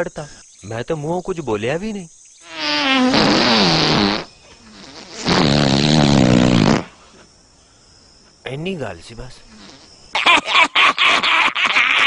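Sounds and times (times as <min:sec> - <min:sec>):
loud farts: 0:02.5 - 0:07.0.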